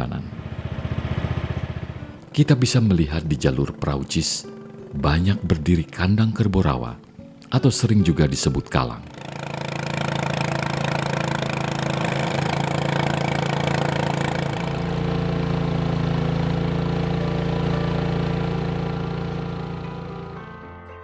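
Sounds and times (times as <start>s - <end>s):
motorboat engine running: 0.0s - 2.3s, 9.0s - 20.6s.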